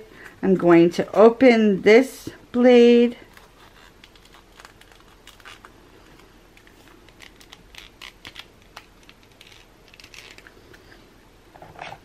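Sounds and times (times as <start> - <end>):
packaging clicks and rustles: 3.3 - 10.9.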